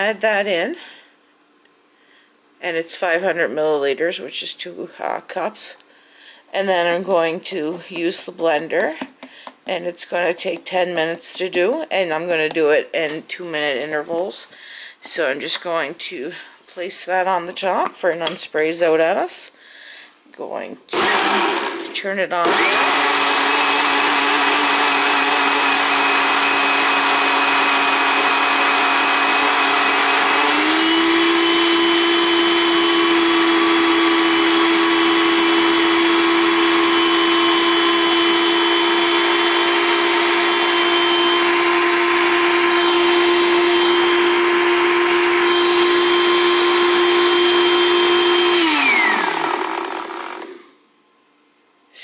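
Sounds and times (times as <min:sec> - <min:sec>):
blender motor whine: 0:20.9 - 0:50.7.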